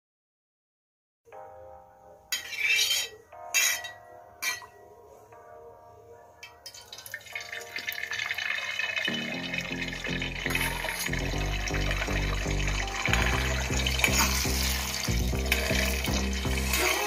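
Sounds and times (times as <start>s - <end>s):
soft background music: 1.3s - 17.0s
metal spoon scraping in a pan: 2.4s - 4.8s, 10.5s - 11.7s, 13.0s - 17.0s
eggs frying sizzle: 6.8s - 17.0s.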